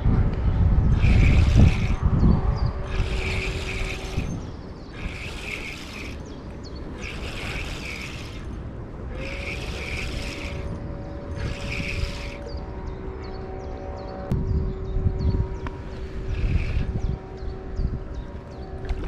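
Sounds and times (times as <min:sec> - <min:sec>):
wind rumbling on microphone: 0:00.0 - 0:19.0
fishing reel whirring: 0:00.9 - 0:12.6, 0:15.8 - 0:17.4.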